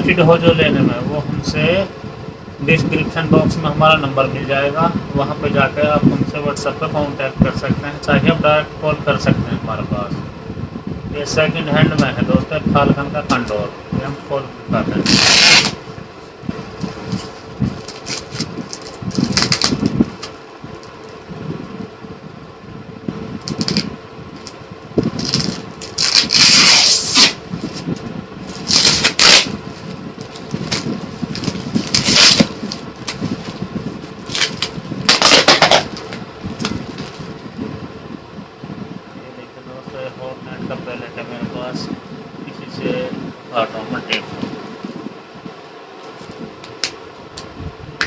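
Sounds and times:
steady low hum: 0.0 - 48.0
tape tearing: 15.0 - 15.8, 16.8 - 21.2, 23.4 - 24.6, 25.2 - 37.3
crackling and scraping: 15.0 - 21.2, 23.4 - 37.4.

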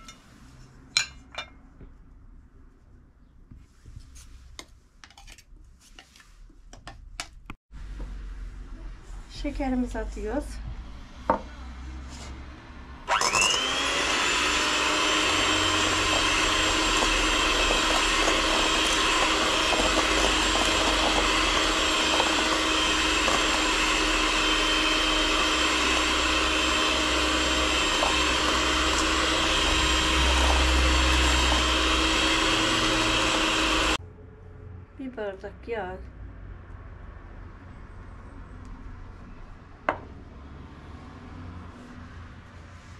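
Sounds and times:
electric blender whine: 13.0 - 34.0.

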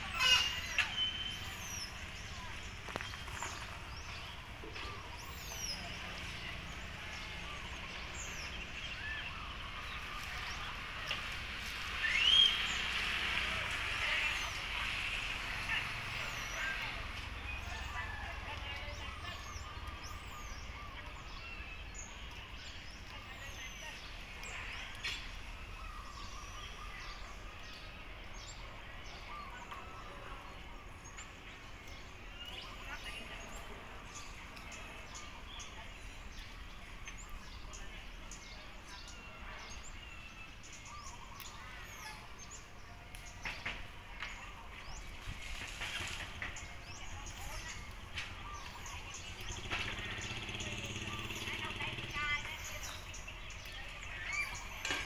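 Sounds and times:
bird chirps and whistles: 0.2 - 1.6, 12.0 - 12.7.

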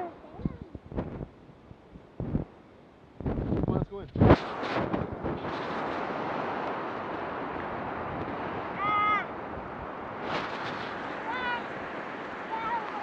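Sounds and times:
surf washing in: 4.2 - 13.0.

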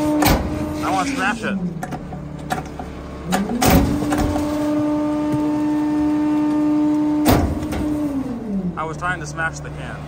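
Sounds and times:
hydraulic packer cycling: 0.0 - 8.8
garbage truck engine droning: 0.0 - 10.0.

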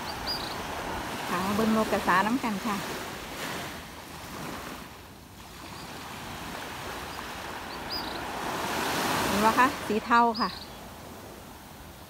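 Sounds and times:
faint high chirp: 0.0 - 0.6, 7.1 - 8.3, 10.3 - 10.8
small waves washing on sand: 0.0 - 12.0.

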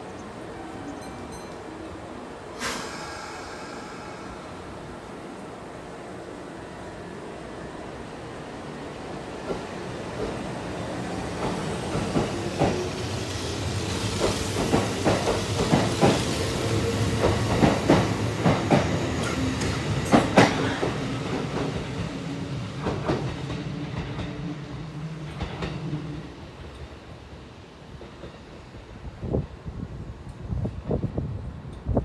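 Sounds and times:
train wheels clicking over rail joints: 13.8 - 16.3, 17.2 - 22.2.

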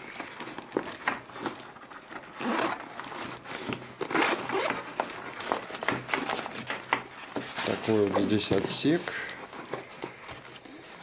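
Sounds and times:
bag fabric rustling: 0.0 - 11.0
zipper being pulled open: 2.4 - 3.3, 4.0 - 5.0.

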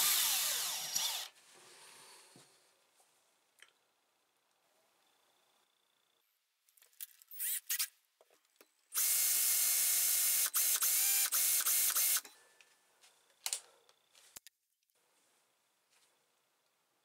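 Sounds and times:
cordless drill cutting steel: 0.0 - 1.4, 7.3 - 7.9, 8.9 - 12.3.

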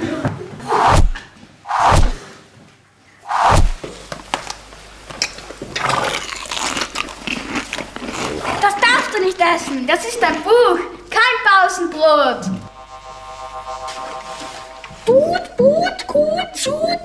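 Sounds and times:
heavy thumps: 0.9 - 1.2, 3.4 - 3.8.

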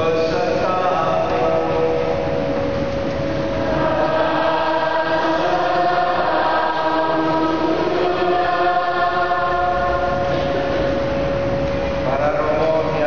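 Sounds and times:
held drone note: 0.0 - 13.0
choir singing a slow chant: 3.4 - 11.0.

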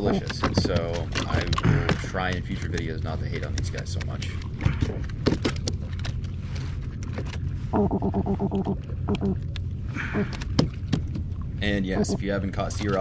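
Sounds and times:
fish croaking: 7.7 - 12.4.

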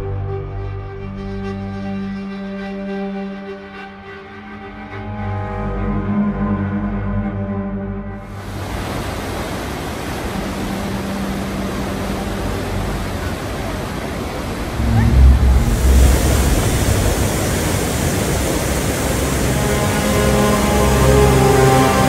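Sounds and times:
river rapids rushing: 8.4 - 22.0
waterfall plunging: 8.4 - 22.0.

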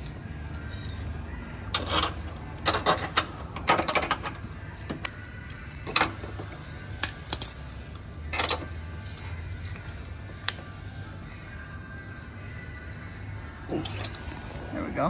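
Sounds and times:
metal hardware clinking and rattling: 0.5 - 4.4, 5.8 - 8.7.

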